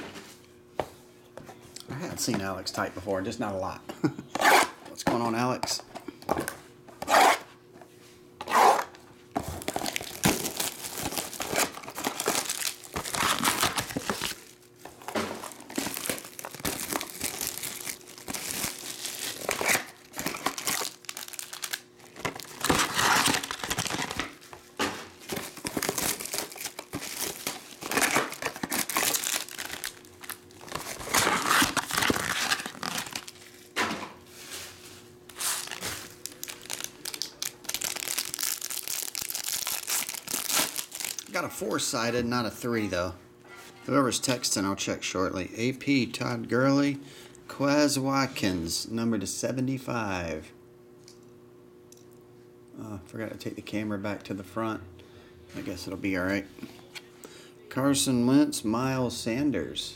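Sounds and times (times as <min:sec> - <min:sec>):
plastic wrap crinkling and tearing: 0:08.5 - 0:24.6, 0:25.2 - 0:33.7, 0:35.3 - 0:41.4.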